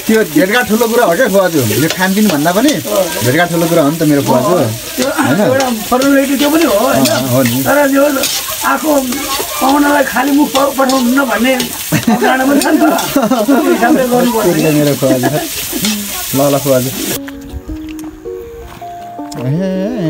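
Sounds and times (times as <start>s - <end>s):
onions sizzling in a wok: 0.0s - 17.2s
spatula scraping a pan: 1.6s - 17.2s
melody with wavering held notes: 17.1s - 20.0s.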